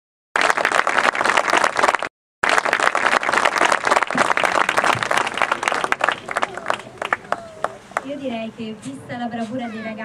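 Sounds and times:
audience applauding: 0.4s - 8.1s.

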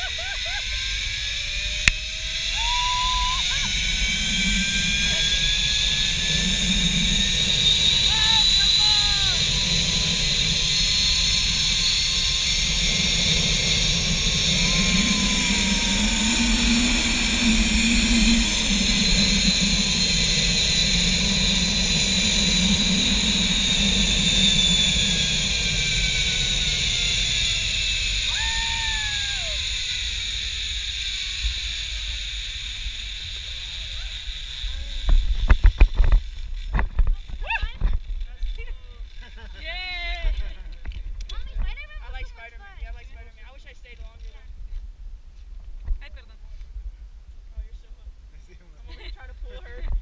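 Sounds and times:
zipline pulleys whining on cable: 0.0s - 42.6s
wind on microphone: 34.7s - 38.2s.

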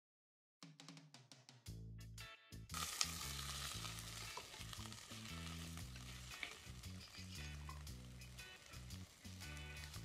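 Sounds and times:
music with steady bass line: 1.7s - 10.0s
onions sizzling: 2.7s - 10.0s
metal spoon stirring: 6.0s - 8.5s.

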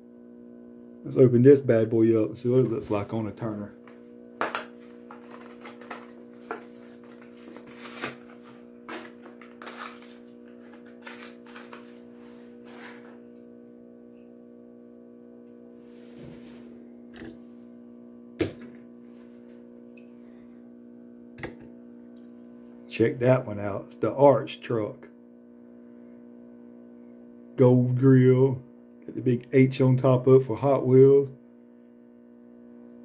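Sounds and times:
motorized turntable humming: 1.0s - 14.6s, 15.4s - 23.0s.

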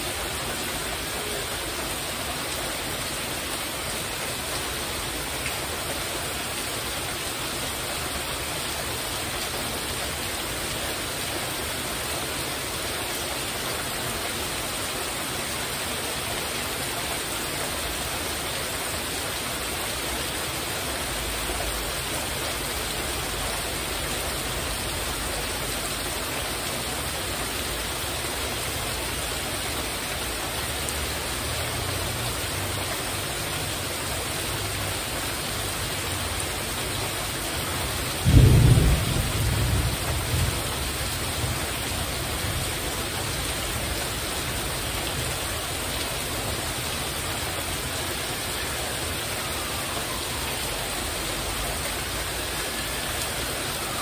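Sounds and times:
rain on a metal roof: 0.0s - 54.0s
thunder rumble: 38.2s - 41.6s
loud thunder clap: 38.3s - 40.5s.

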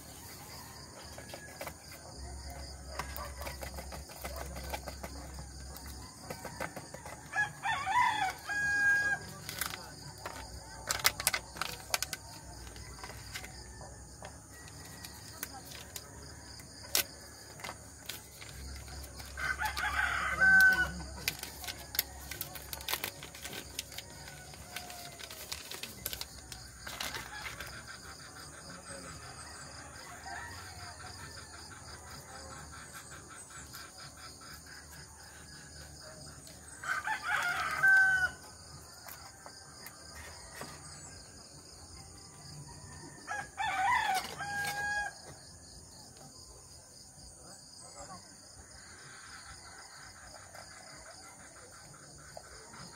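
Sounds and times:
rooster crowing: 5.9s - 9.4s, 19.3s - 21.2s, 36.8s - 38.7s, 42.6s - 45.4s
paper packet crinkling: 9.4s - 13.5s, 16.9s - 27.7s.

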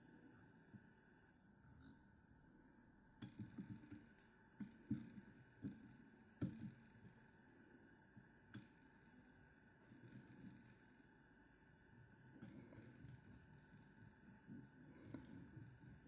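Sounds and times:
faint clicks and taps: 3.1s - 7.3s, 8.1s - 8.9s, 12.3s - 16.0s.

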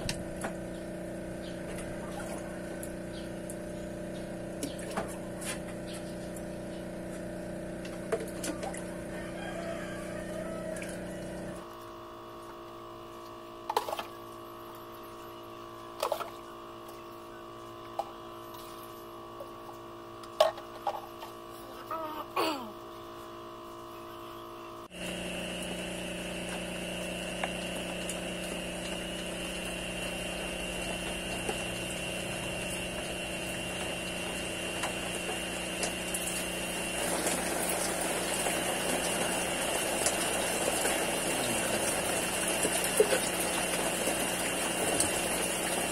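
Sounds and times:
air pumps humming: 0.0s - 45.9s
high whine: 22.8s - 45.9s
water pouring into tank: 31.2s - 45.9s.

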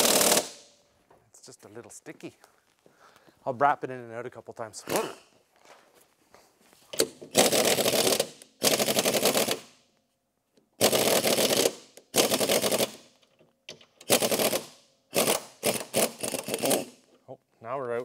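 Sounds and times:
pneumatic impact wrench hammering: 0.0s - 0.7s, 6.9s - 9.8s, 10.8s - 17.0s.

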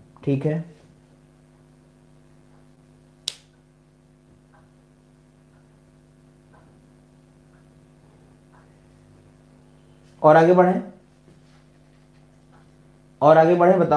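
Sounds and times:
faint electrical hum: 0.0s - 13.9s
sharp click: 3.2s - 3.6s.

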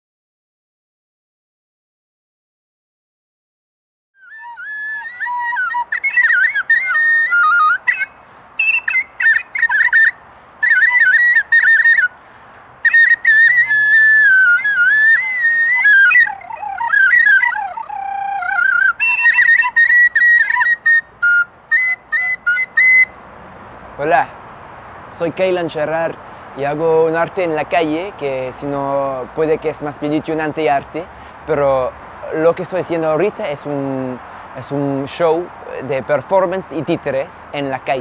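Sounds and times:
high warbling whistle: 4.2s - 12.1s, 12.8s - 23.1s.

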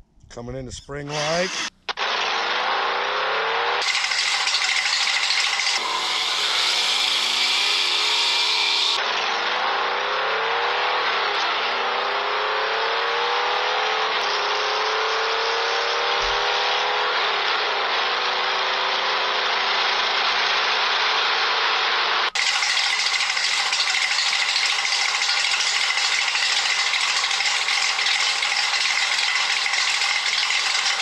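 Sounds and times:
toy car motor whirring: 1.1s - 2.6s, 3.8s - 9.0s, 22.3s - 31.0s.

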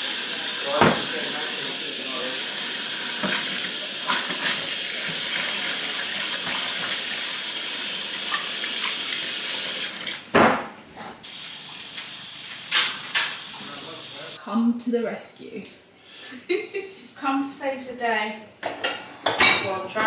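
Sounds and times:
loud knock against sink: 0.8s - 1.1s.

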